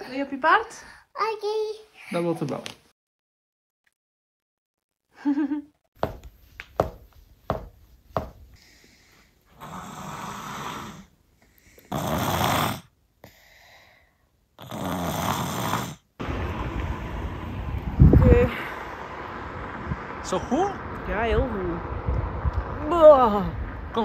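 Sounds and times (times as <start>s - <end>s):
person snoring: 9.6s - 11.1s, 11.9s - 13.4s, 14.6s - 16.0s.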